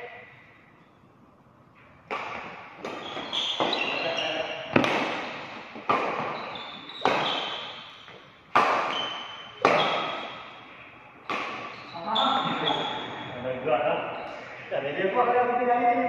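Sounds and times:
rackets striking shuttlecock: 2.1 - 4.0, 4.7 - 10.6, 11.2 - 11.9.

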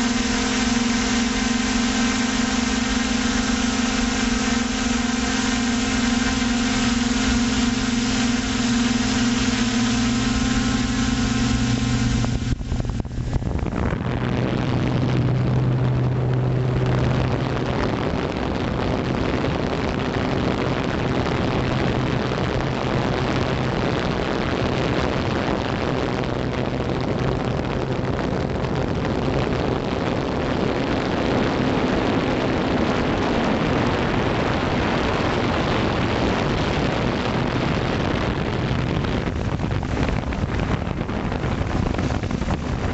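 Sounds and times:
drone motors humming: 0.0 - 18.2
rushing air: 0.0 - 19.0, 35.7 - 42.9.

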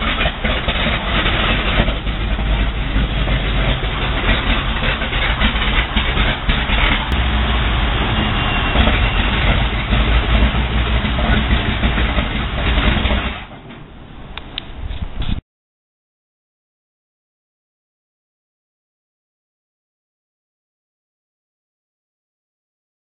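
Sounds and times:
tank engine droning: 0.0 - 15.4.

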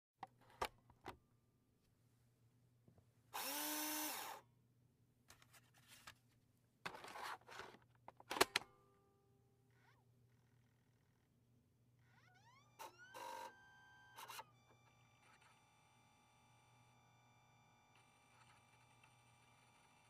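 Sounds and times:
disk drive motor whirring: 12.2 - 20.0.

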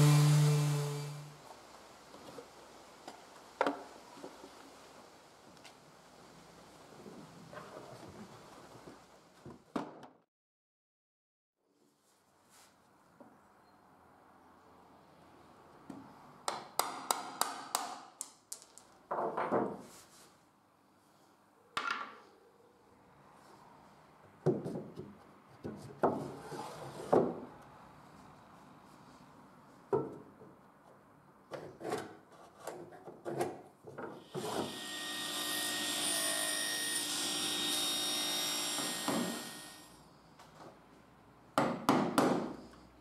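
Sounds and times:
table saw running: 0.0 - 1.3, 34.3 - 39.9
wooden knocks and scrapes: 19.1 - 20.1.

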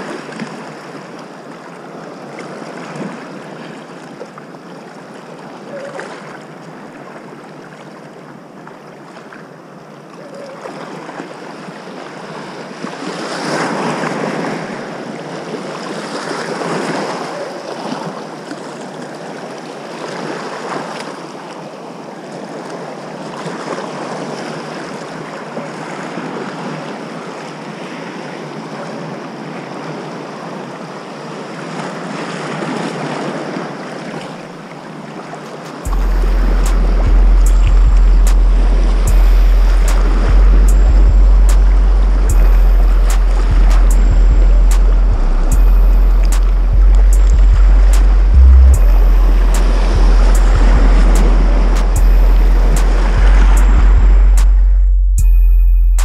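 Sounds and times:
waves splashing against rocks: 10.6 - 37.4, 39.8 - 40.4, 49.3 - 53.5.

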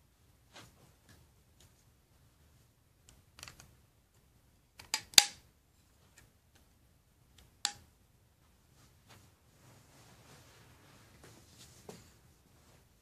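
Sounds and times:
plastic bricks clicking and snapping: 3.1 - 3.7, 4.8 - 5.4.

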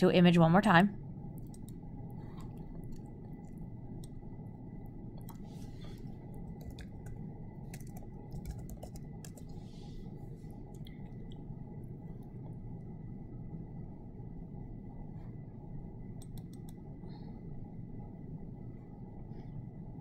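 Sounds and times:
steady low hum: 0.0 - 20.0
computer keyboard typing: 1.4 - 4.2, 5.2 - 9.7, 16.2 - 16.8
mouse clicks: 16.2 - 16.8.

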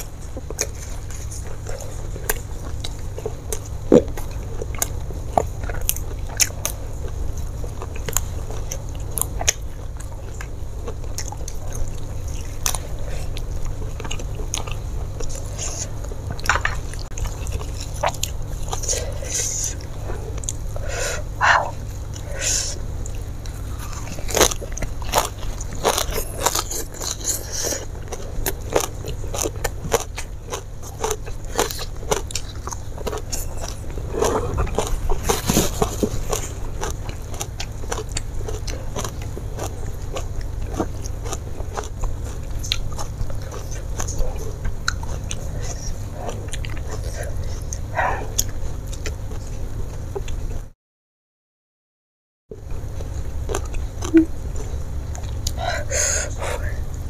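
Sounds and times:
chewing and crunching food: 0.0 - 50.7, 52.5 - 57.0
steady low hum: 0.0 - 50.7, 52.5 - 57.0
wet mouth sounds: 53.5 - 56.8.

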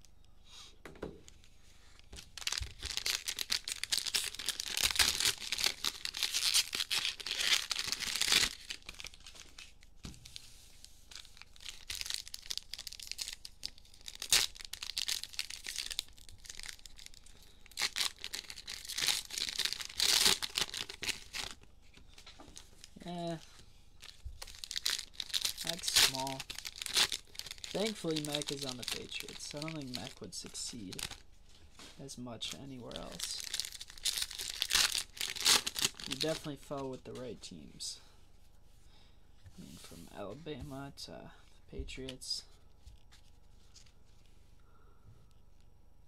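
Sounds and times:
plastic wrappers crinkling: 2.0 - 31.2, 32.0 - 36.9.

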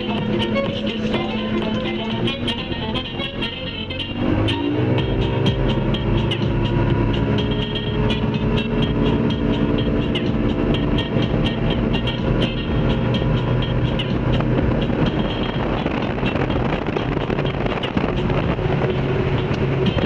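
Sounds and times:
boat engine running: 0.0 - 20.0
wind on microphone: 4.0 - 20.0.

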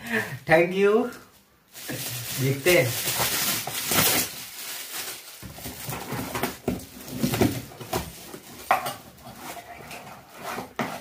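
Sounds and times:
wrapping paper crinkling and tearing: 1.2 - 8.7.

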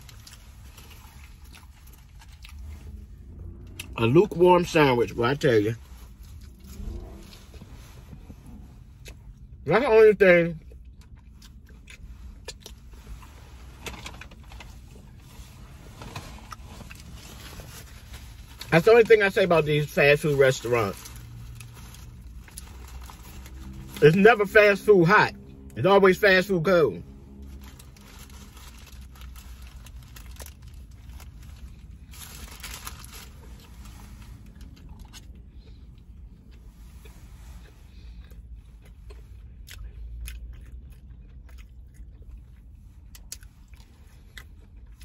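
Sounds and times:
quiet chewing: 0.0 - 4.0, 34.4 - 45.0
low rumble inside car: 0.0 - 45.0
paper wrapper rustling: 27.4 - 34.2.

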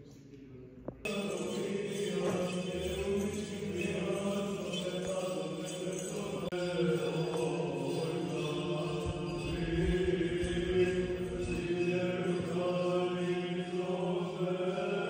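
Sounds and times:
slow choral chanting: 1.0 - 15.0
steady low drone: 8.3 - 14.2.

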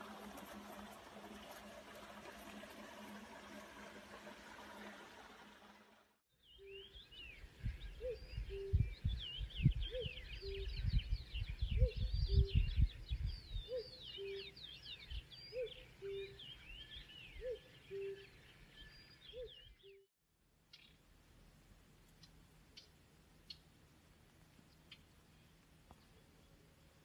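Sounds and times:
birds whistling and chirping: 6.4 - 20.0.

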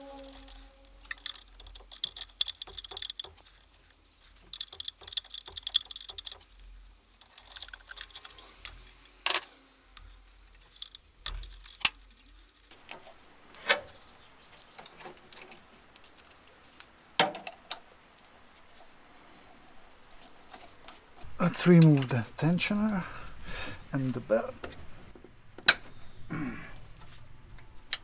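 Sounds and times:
metallic clicks of hand tools: 0.0 - 3.6, 4.4 - 6.5.

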